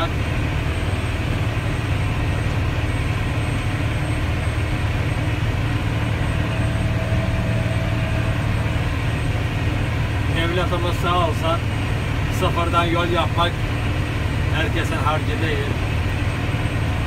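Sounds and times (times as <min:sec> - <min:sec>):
diesel engine running in cab: 0:00.0 - 0:17.0.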